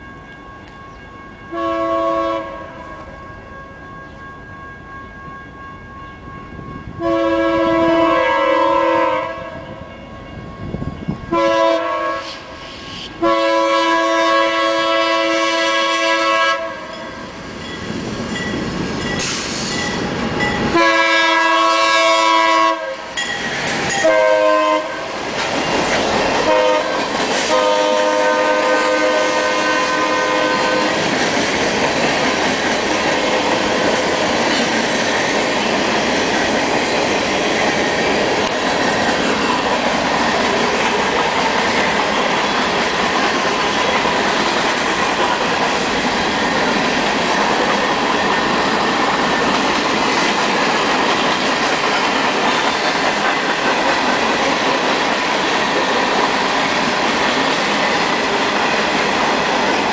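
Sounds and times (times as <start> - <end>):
locomotive air horn blasts: 1.5 - 3.2, 7.0 - 9.8, 11.3 - 17.0, 20.7 - 23.2, 23.9 - 25.1, 26.4 - 31.0
train wheels clattering on rails: 16.3 - 22.5, 23.1 - 59.9.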